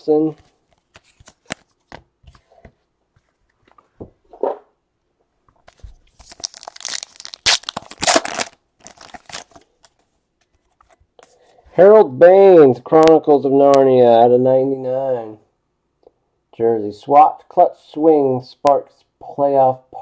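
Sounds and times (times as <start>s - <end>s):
cards clicking being handled: 0.8s - 2.0s
wrapper ripping and crinkling: 6.1s - 9.9s.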